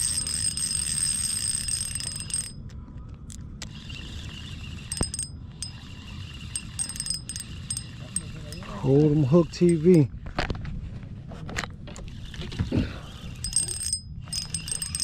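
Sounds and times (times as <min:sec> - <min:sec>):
fishing reel drag buzzing: 0:00.0 - 0:02.6, 0:03.7 - 0:10.0, 0:13.3 - 0:15.0.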